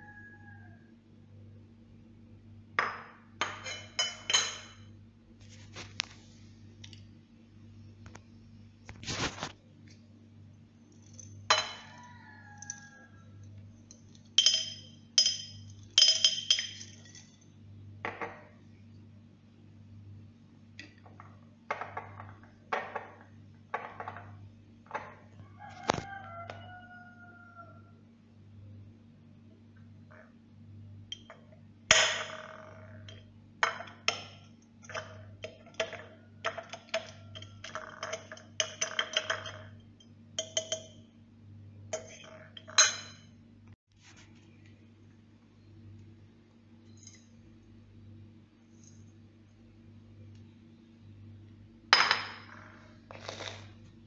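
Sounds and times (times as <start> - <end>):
tablets clinking on porcelain plate: 2.8 - 4.9, 11.0 - 12.0, 13.9 - 17.4, 31.9 - 39.8, 40.4 - 41.0, 42.0 - 43.3.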